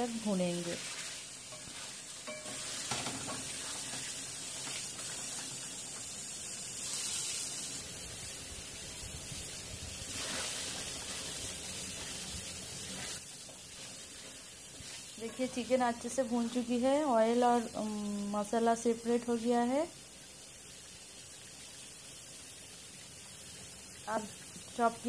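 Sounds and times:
chicken sizzling in a pan: 0.0s - 25.0s
wooden spatula scraping: 0.6s - 5.7s, 10.1s - 15.8s.

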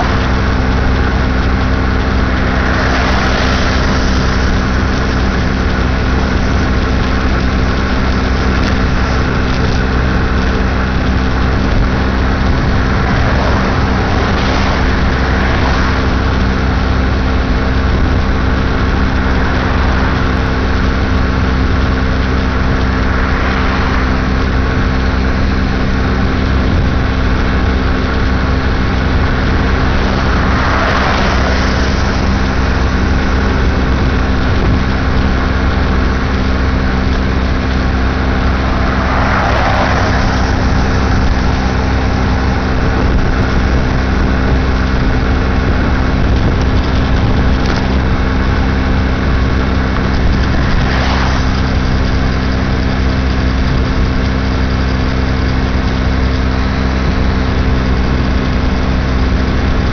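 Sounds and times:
moped engine cruising: 0.0s - 59.9s
vehicles passing: 0.0s - 59.9s.

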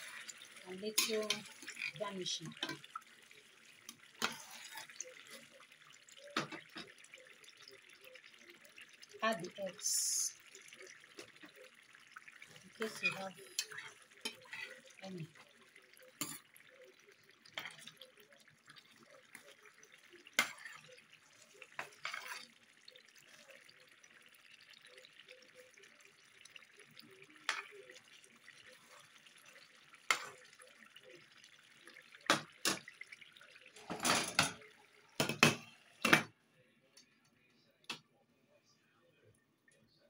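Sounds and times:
stew bubbling and sizzling: 0.0s - 36.4s.

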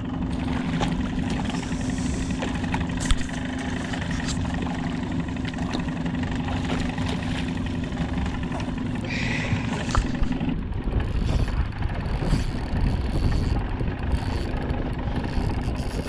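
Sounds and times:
outboard motor idling: 0.0s - 16.0s.

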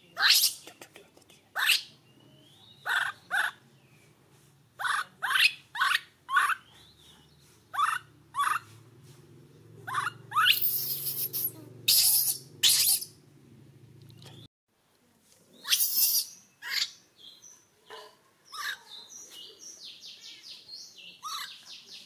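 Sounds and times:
infant monkey squealing: 0.2s - 0.6s, 1.6s - 1.9s, 2.9s - 3.6s, 4.8s - 6.6s, 7.8s - 8.7s, 9.9s - 13.2s, 15.6s - 16.9s, 18.5s - 18.8s, 21.2s - 21.5s.

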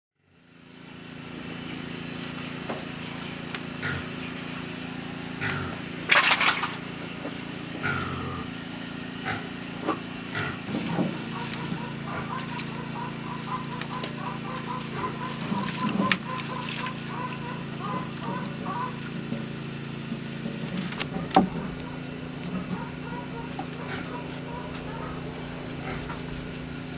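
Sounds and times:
steady low hum: 0.2s - 26.9s
water sloshing in plastic basin: 6.1s - 6.9s, 14.0s - 17.6s.

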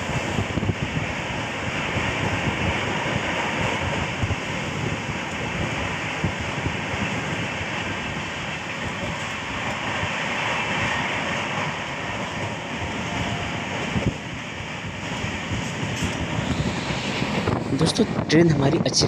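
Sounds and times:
rushing air: 0.0s - 19.0s
train wheels rumbling on rails: 0.0s - 19.0s.

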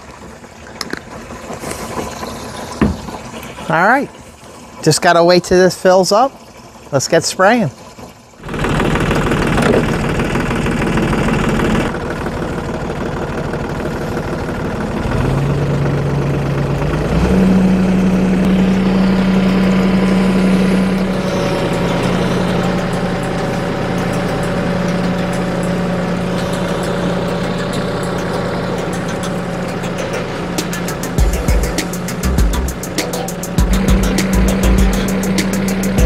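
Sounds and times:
tractor diesel engine running: 8.4s - 36.0s.

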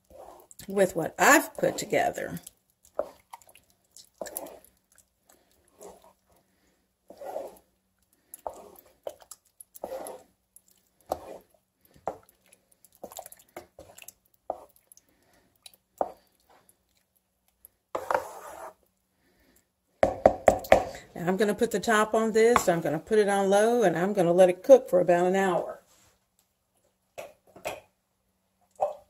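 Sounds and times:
wooden spoon stirring thick sauce: 0.0s - 20.9s.

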